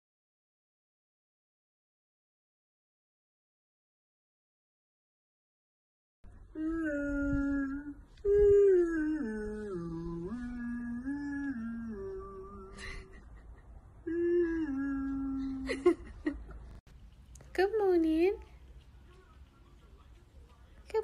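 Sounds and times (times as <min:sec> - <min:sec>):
person humming a slow tune: 0:06.4 - 0:16.1.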